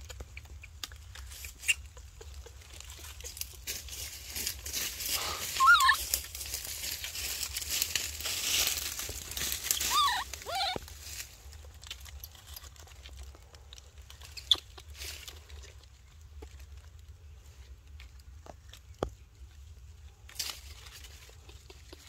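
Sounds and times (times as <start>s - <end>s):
dry leaves rustling: 1.1s - 22.0s
infant monkey wavering cries: 5.5s - 6.2s, 9.7s - 10.8s.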